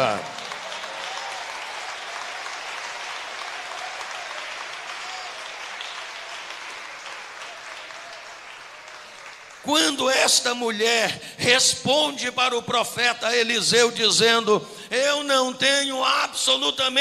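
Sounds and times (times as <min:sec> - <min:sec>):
congregation applauding: 0:00.0 - 0:11.9.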